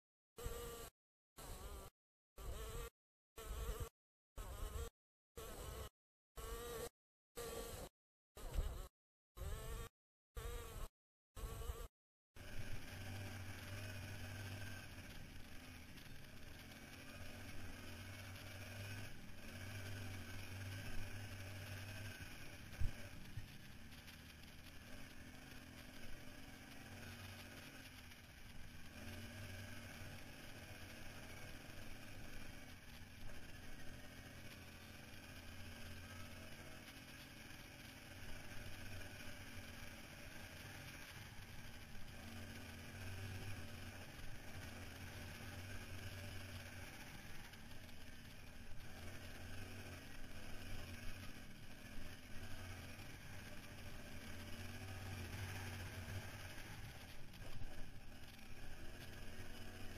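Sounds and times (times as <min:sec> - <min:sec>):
atv engine running: 0:00.4 - 0:59.9
wind and ground noise: 0:12.4 - 0:59.9.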